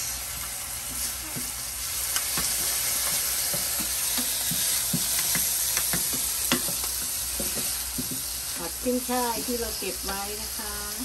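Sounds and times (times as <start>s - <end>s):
food sizzling in frying pan: 0.0s - 11.0s.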